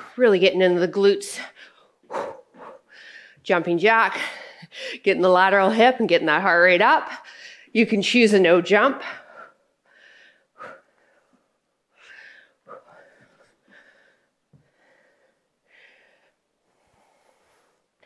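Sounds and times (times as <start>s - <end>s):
woman breathing hard: 1.5s - 3.4s, 9.0s - 17.9s.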